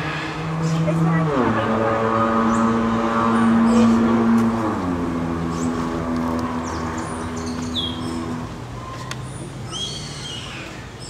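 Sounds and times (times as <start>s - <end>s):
motor engine running: 0.0s - 8.7s
high bird chirps: 6.6s - 10.5s.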